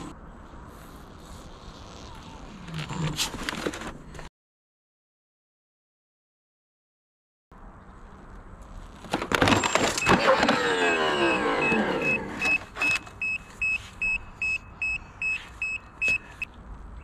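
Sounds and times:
unicycle crashing onto concrete: 9.0s - 10.6s
short high alarm beeps: 9.6s - 16.5s
motor whine falling in pitch: 10.1s - 12.6s.

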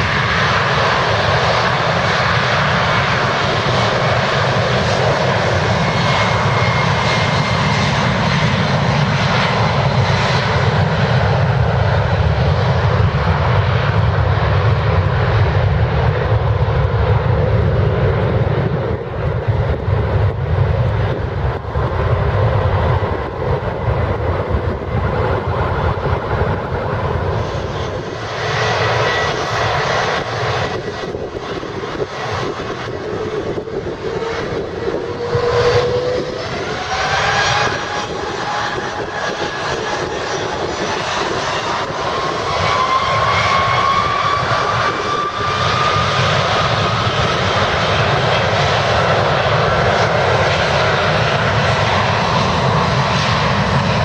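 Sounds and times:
jet engines roaring: 0.0s - 54.0s
engine whine rising in pitch: 27.3s - 47.4s.

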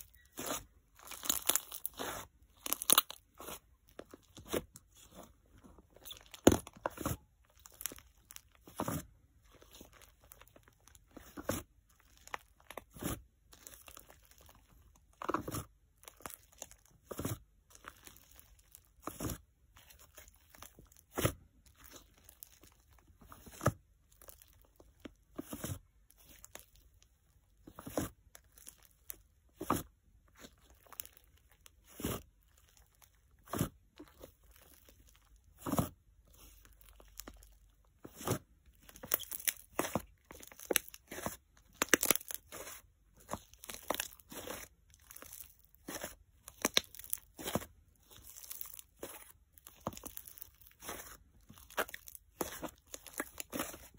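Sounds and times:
slime squelching and popping: 0.0s - 53.9s.

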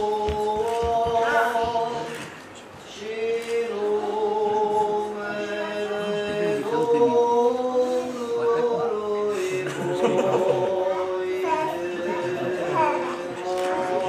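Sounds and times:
low vocal drone: 0.0s - 14.0s
voices chanting a cappella: 0.0s - 14.0s.

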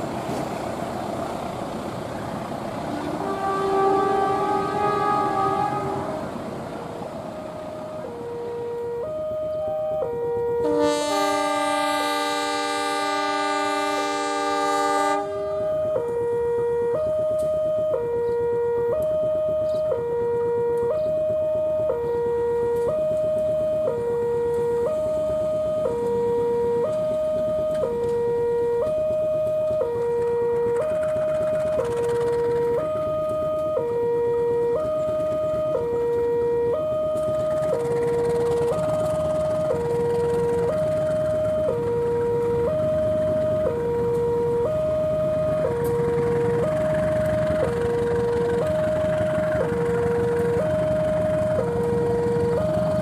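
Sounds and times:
diesel locomotive rumbling: 0.0s - 53.0s
locomotive air horn chord: 2.9s - 16.6s
two-tone warning signal: 3.0s - 6.6s, 7.2s - 53.0s.

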